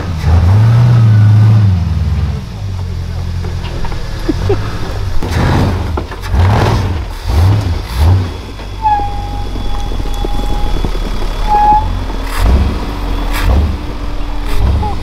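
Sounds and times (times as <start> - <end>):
engine revving: 0.0 - 15.0
thin steady whine: 8.1 - 15.0.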